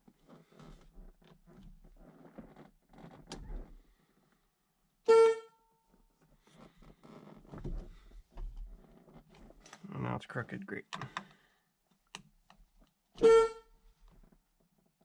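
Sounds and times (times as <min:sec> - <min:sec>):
car horn honk: 0:05.1 - 0:05.6, 0:13.2 - 0:13.7.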